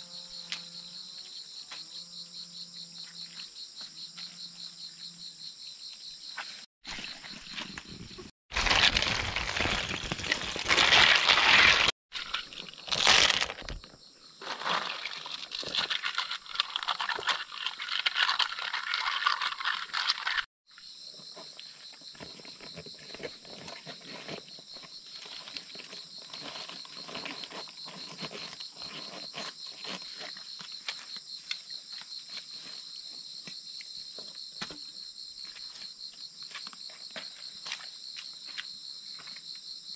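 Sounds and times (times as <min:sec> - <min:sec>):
leaves rustling and crumpling: 0:08.5 - 0:13.8.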